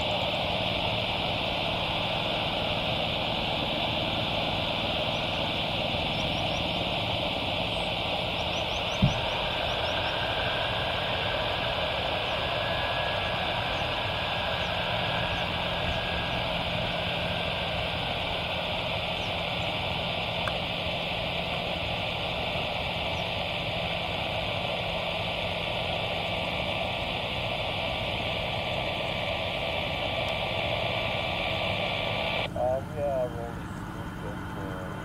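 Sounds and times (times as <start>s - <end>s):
distant jet engines running: 0.0s - 35.0s.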